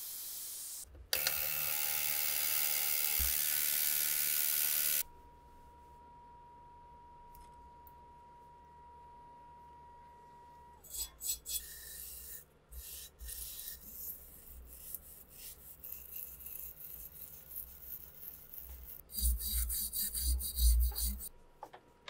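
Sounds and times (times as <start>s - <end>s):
wire brush scrubbing metal: 10.9s - 21.3s.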